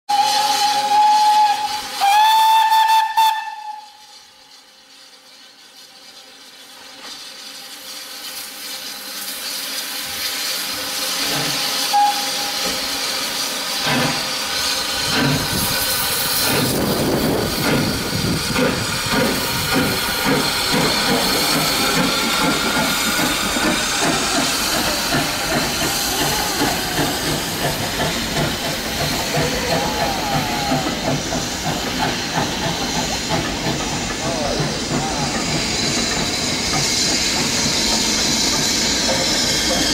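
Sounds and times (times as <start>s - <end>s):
steam whistle blast: 0.1s - 4.6s, 11.0s - 13.2s
steam hissing: 0.1s - 39.9s.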